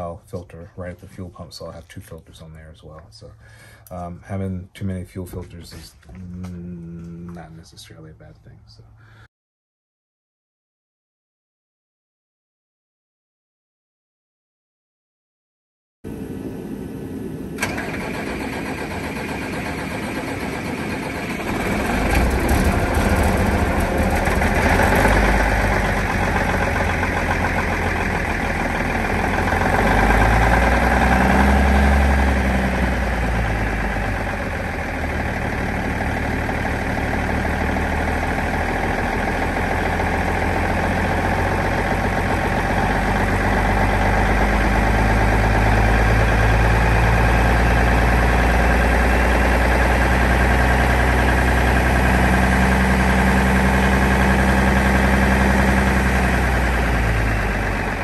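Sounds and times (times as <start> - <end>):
diesel truck engine running: 16.1 - 58.0.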